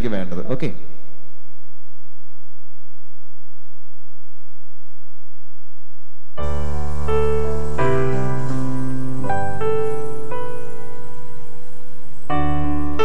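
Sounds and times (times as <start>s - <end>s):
low electrical hum: 0.0s - 13.0s
electronic keyboard piano chord: 6.4s - 13.0s.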